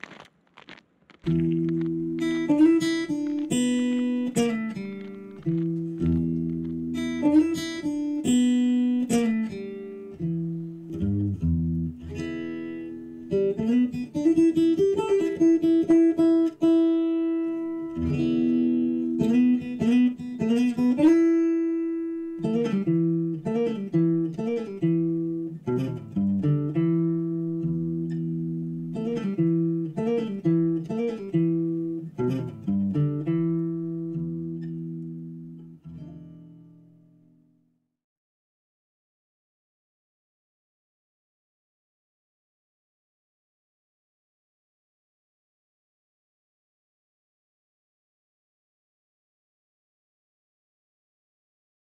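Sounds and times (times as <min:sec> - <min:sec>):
acoustic guitar plucked melody: 0:01.2 - 0:37.8.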